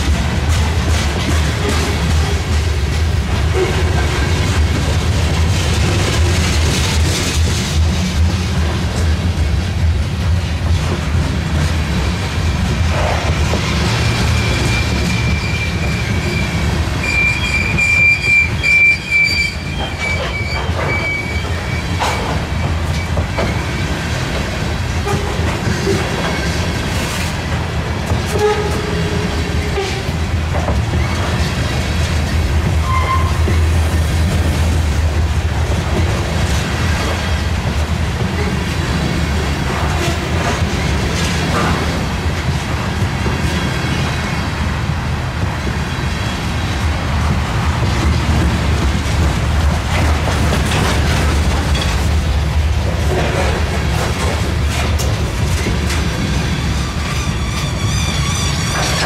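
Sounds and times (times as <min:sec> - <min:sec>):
train wheels rumbling on rails: 0:00.0 - 0:59.0
high wheel squeal: 0:13.9 - 0:24.0, 0:32.8 - 0:33.6, 0:56.4 - 0:59.0.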